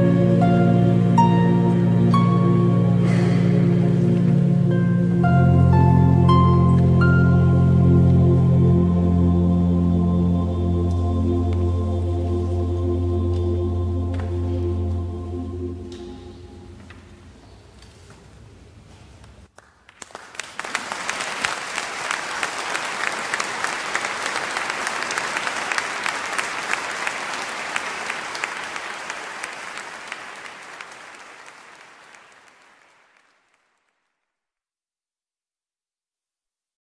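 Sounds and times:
audience applauding: 19.5 - 34.3.

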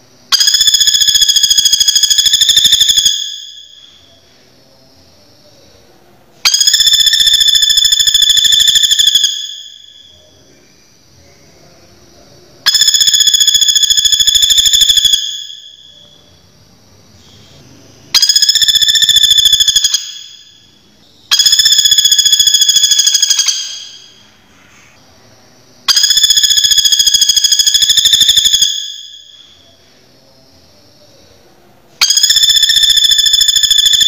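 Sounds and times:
woodpecker rattling trills: 18.2 - 20.4, 21.3 - 24.2.

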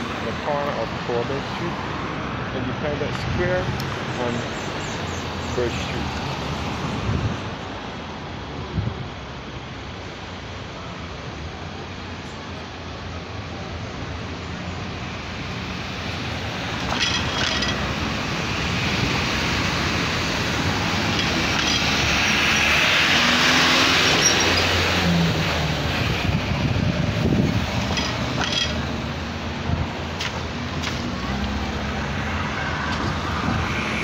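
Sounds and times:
road traffic passing: 0.0 - 34.0
large vehicle passing: 13.2 - 34.0.

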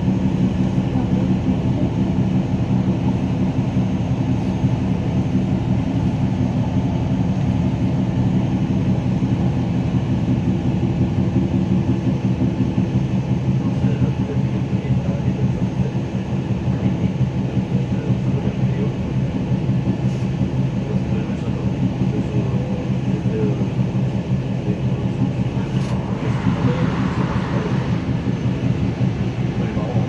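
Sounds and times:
train wheels rumbling on rails: 0.0 - 30.0
higher rushing noise: 24.8 - 30.0.

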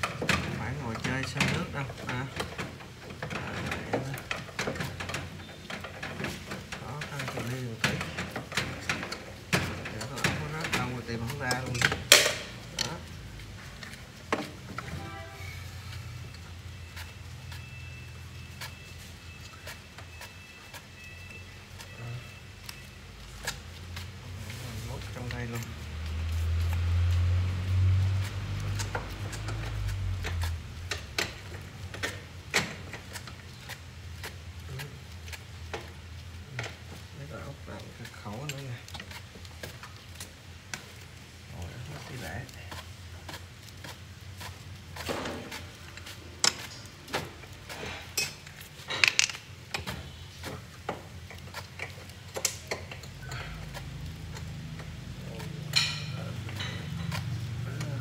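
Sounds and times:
tools clicking on metal parts: 0.0 - 13.2, 25.0 - 37.1, 41.8 - 58.0.

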